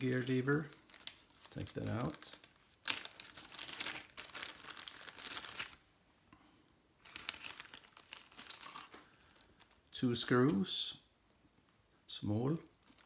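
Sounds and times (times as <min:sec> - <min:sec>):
plastic bag crinkling: 0:00.0 - 0:05.8, 0:07.0 - 0:09.9, 0:12.8 - 0:13.0.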